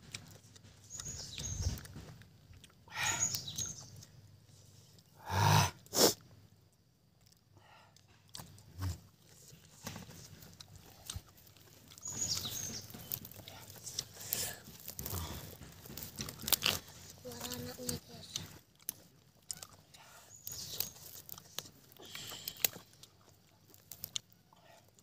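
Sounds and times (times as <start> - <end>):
chewing clicks: 0.0 - 5.1, 6.1 - 25.0
lip smacks: 18.3 - 25.0.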